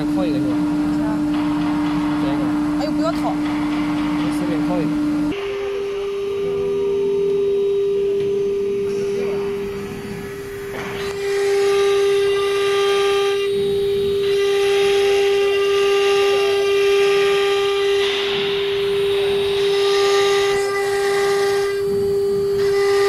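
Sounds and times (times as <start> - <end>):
cnc spindle whining: 0.0 - 23.0
router bit cutting board: 8.9 - 23.0.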